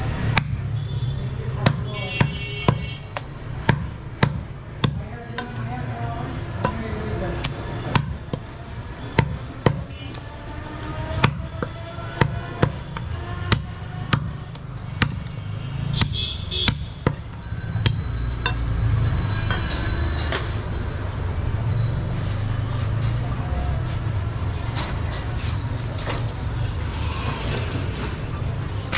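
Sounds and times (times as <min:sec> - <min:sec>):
cleaver chopping meat and bone: 0:00.0 - 0:05.6, 0:06.5 - 0:10.2, 0:10.8 - 0:18.0.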